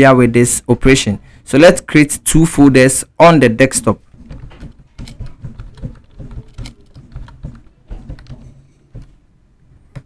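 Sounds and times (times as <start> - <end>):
keyboard typing: 4.1 - 9.2.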